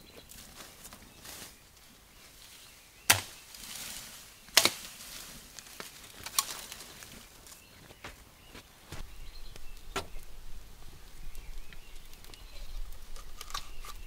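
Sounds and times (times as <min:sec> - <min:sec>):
leaves rustling: 0:00.0 - 0:14.0
machete chopping sapling: 0:03.1 - 0:03.4, 0:04.5 - 0:04.9.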